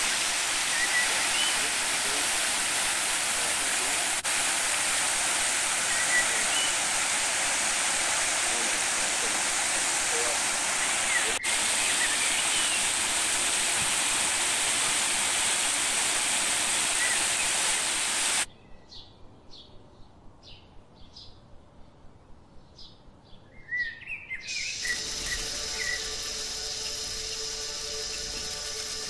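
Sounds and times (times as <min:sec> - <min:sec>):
water rushing over rocks: 0:00.0 - 0:18.5, 0:24.5 - 0:29.0
bird chirps: 0:23.4 - 0:29.0
music: 0:24.7 - 0:29.0.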